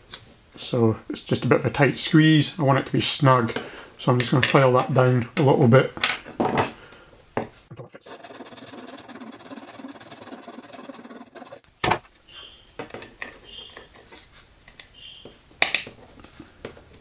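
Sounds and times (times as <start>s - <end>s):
metal file rasping on plastic: 8.0s - 11.6s.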